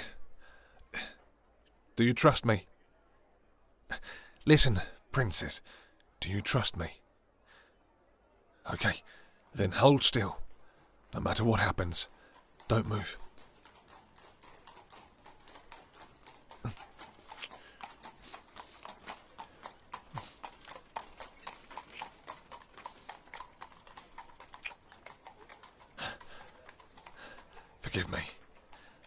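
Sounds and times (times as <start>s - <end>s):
hooves clip-clopping on cobblestones: 8.8s - 29.0s.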